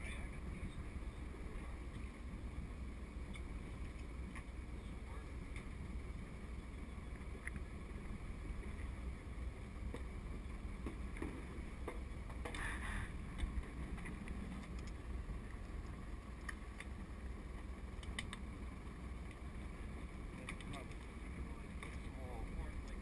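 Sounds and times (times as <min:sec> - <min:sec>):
light clicks: 0:20.4 - 0:21.1.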